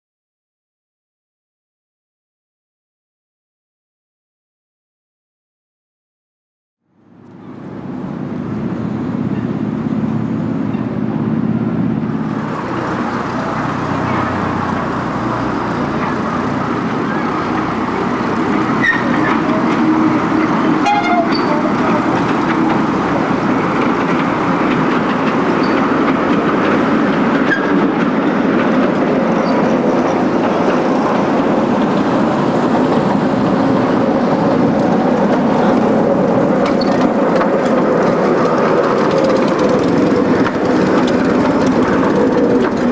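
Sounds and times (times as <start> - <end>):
miniature train engine hum: 7.0 - 42.9.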